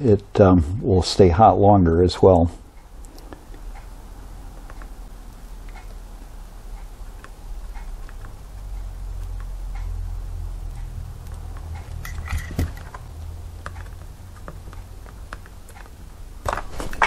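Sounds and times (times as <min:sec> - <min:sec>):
low steady hum: 0:00.0 - 0:17.0
metallic clicks and taps: 0:04.6 - 0:06.0, 0:06.8 - 0:09.9, 0:10.6 - 0:16.1.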